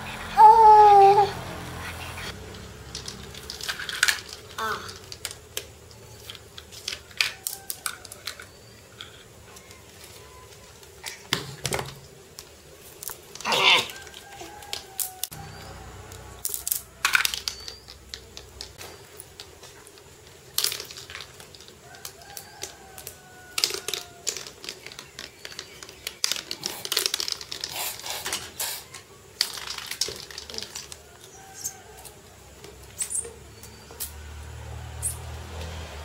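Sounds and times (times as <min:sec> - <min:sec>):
toy train pieces clattering on tiles: 0:02.5 - 0:09.2, 0:16.4 - 0:28.6, 0:29.4 - 0:31.7.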